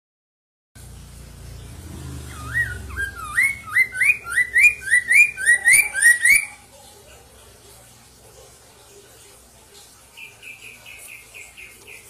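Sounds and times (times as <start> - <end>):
bird whistling song: 2.2 - 6.6.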